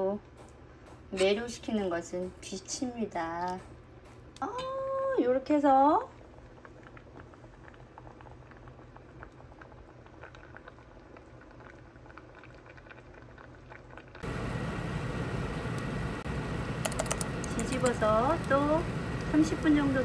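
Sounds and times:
stew bubbling pops: 6.3 - 14.2
oven fan whir: 13.4 - 20.0.

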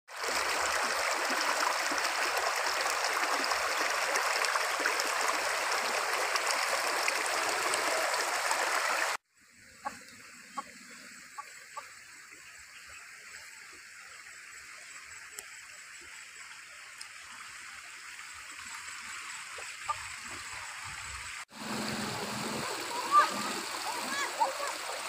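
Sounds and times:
stream rushing over rocks: 0.1 - 9.2, 18.2 - 25.0.

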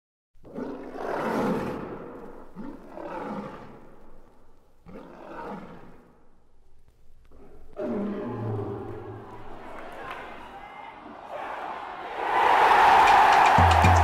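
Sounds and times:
lion roaring: 0.4 - 4.2, 4.8 - 6.2, 7.3 - 9.0.

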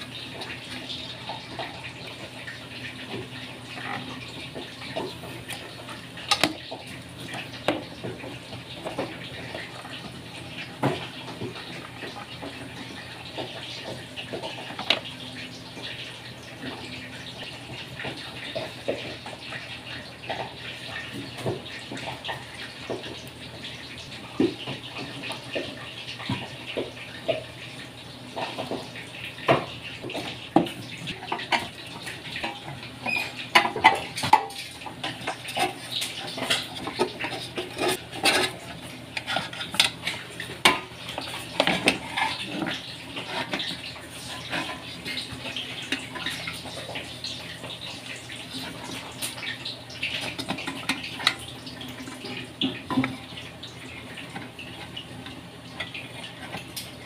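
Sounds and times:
metallic clanks and scrapes: 35.5 - 40.2.

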